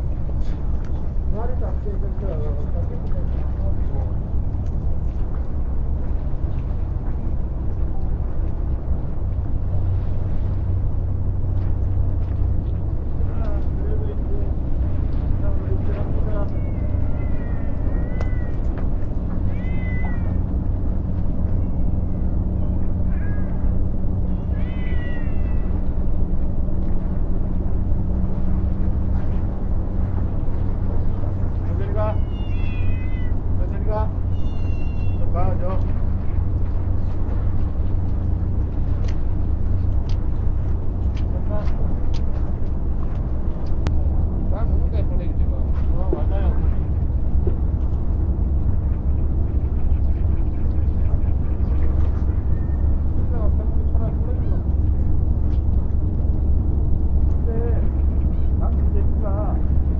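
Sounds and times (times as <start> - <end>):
steady low rumble: 0.0 - 59.9
cat meowing: 16.2 - 18.7, 19.4 - 20.5, 22.6 - 25.8, 31.9 - 33.4, 34.3 - 35.4.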